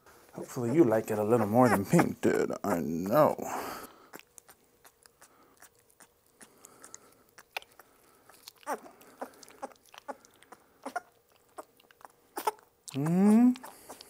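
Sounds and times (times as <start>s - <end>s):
puppy smacking and licking: 4.1s - 14.0s
puppy squeaks: 8.6s - 8.9s, 10.8s - 11.7s, 12.4s - 12.6s.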